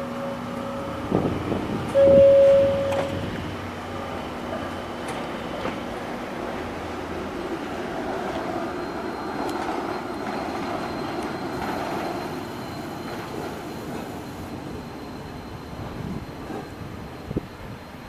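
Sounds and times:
tram wheels rumbling on rails: 0.0s - 18.0s
thin high whine: 1.9s - 3.4s.

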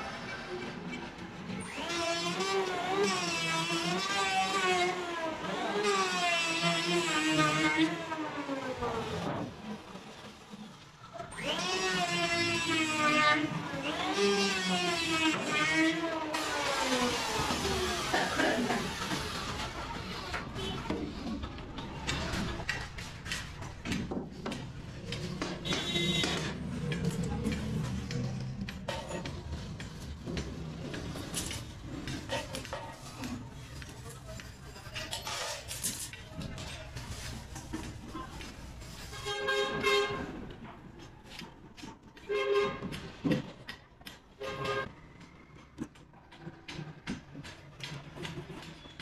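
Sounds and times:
vehicle horn blasts: 25.6s - 26.5s, 39.1s - 40.2s, 42.3s - 42.9s, 44.4s - 44.9s.

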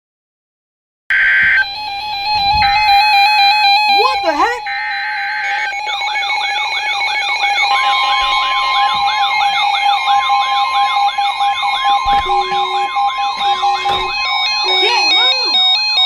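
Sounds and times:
electronic beeping: 1.1s - 16.0s
long alert tone: 1.1s - 16.0s
warbling siren tone: 1.1s - 16.0s
short lower beep: 11.8s - 15.8s.

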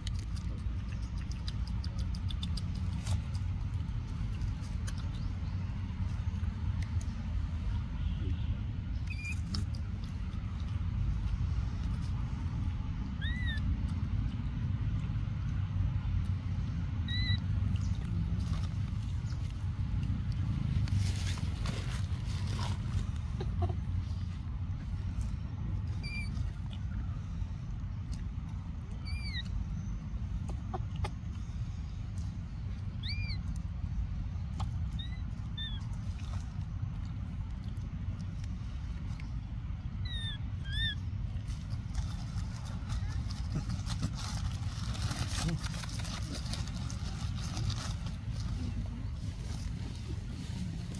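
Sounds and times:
steady low rumble: 0.0s - 50.9s
baby monkey squeaking: 8.9s - 9.8s, 13.0s - 14.0s, 17.0s - 17.7s, 25.8s - 26.7s, 28.9s - 31.2s, 32.9s - 33.6s, 34.3s - 36.1s, 39.9s - 41.6s
squeaky animal calls: 13.1s - 13.7s, 17.0s - 17.5s, 26.0s - 26.4s, 29.0s - 29.5s, 33.0s - 33.4s, 34.9s - 35.8s, 40.0s - 41.1s.

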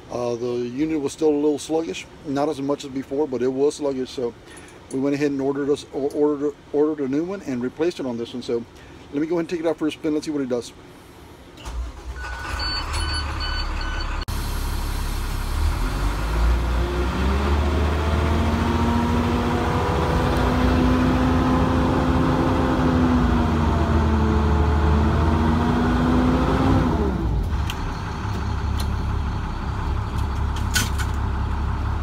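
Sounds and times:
diesel engine running: 11.6s - 32.0s
short beeps: 12.2s - 14.3s.

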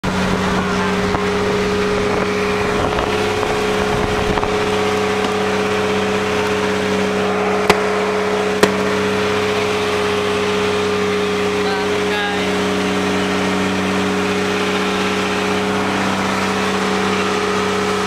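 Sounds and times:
boat engine droning: 0.0s - 18.0s.

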